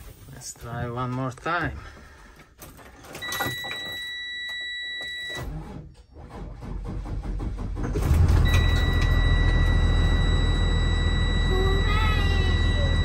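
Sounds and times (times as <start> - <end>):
bus engine rumbling: 6.3 - 13.0
warning buzzer beeping: 8.5 - 13.0.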